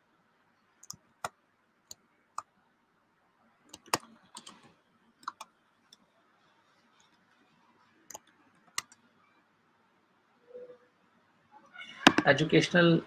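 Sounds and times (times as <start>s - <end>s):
keyboard typing clicks: 3.7s - 5.5s.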